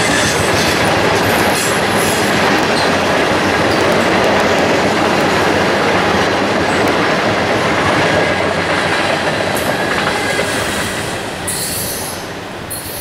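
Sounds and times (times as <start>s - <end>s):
train wheels rumbling over rails: 0.0s - 13.0s.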